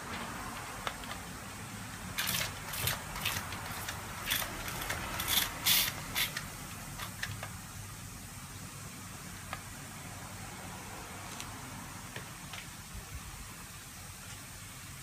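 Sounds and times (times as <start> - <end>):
water gun hissing bursts: 5.2 - 6.4.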